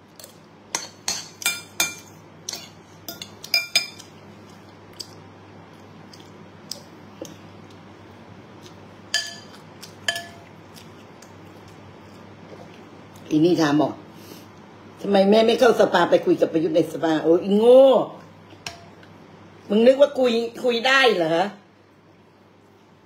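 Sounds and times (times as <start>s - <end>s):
spoon clinking against ceramic bowl: 0.7s - 4.0s, 9.1s - 10.5s.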